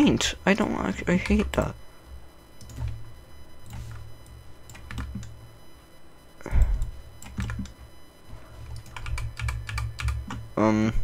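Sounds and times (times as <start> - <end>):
keyboard and mouse clicking: 6.8 - 7.8, 8.7 - 10.4.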